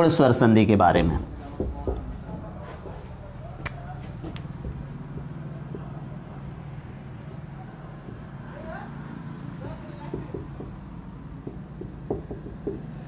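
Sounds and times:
cricket chirping: 0.0 - 13.0
marker scratching on whiteboard: 4.1 - 8.7.

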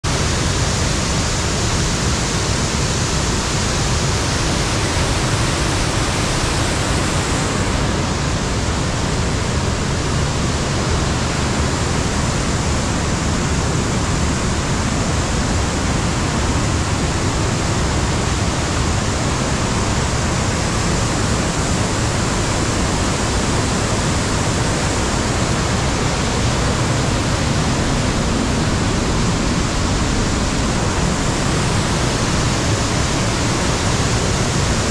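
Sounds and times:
waterfall rushing: 0.1 - 34.9.

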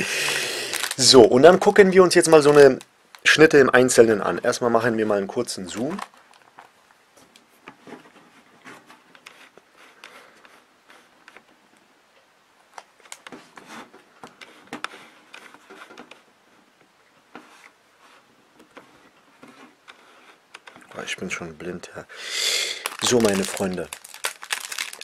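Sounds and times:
plastic wrapper crinkling: 0.0 - 4.3, 5.6 - 6.7, 12.8 - 13.3, 22.8 - 25.0.

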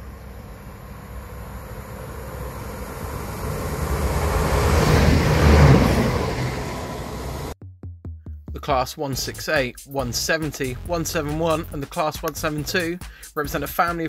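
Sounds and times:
train rumbling past: 0.0 - 7.6.

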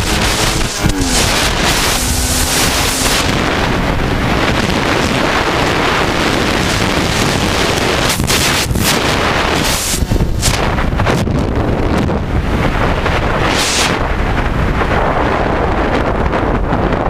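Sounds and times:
motorcycle engine: 0.0 - 11.0
wind rushing over microphone: 0.0 - 17.0.

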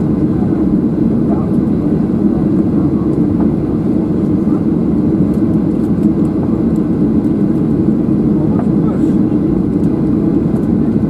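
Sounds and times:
airplane cabin engine drone: 0.0 - 11.0.

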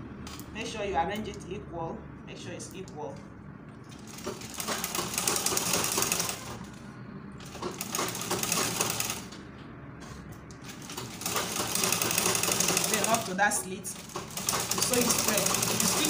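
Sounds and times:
sewing machine stitching: 4.0 - 6.6, 7.4 - 9.3, 10.7 - 13.4, 14.0 - 16.0.

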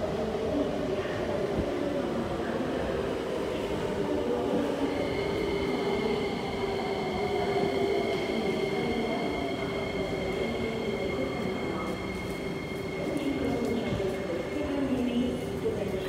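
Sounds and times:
electric train passing: 3.2 - 15.9.

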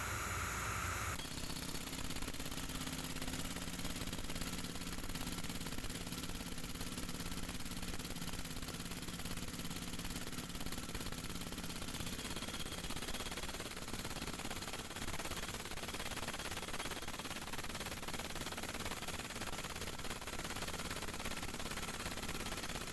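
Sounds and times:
pneumatic hammer chiselling concrete: 1.1 - 22.9.

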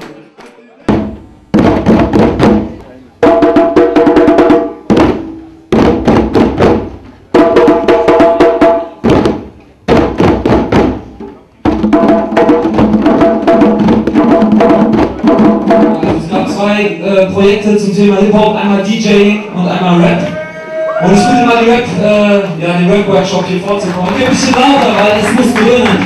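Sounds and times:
djembe drums played by hand: 0.9 - 16.6.

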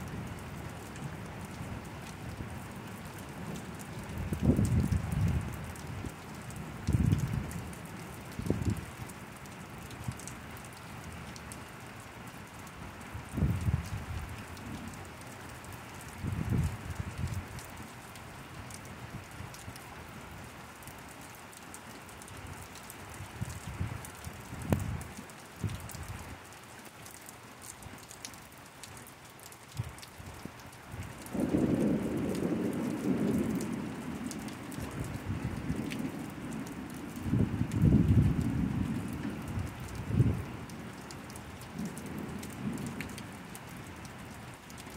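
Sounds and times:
steady rain: 0.0 - 44.9
low thunder rumbles: 4.2 - 5.8, 16.2 - 17.4, 31.2 - 41.1.

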